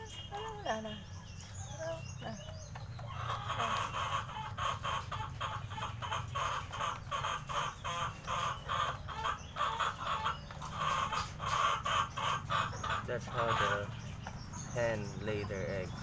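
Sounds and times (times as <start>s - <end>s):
chickens clucking: 0.0s - 16.0s.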